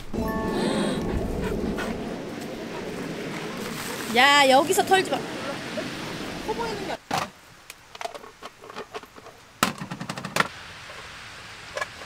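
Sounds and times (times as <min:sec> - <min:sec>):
surf hissing: 0:00.1 - 0:07.0.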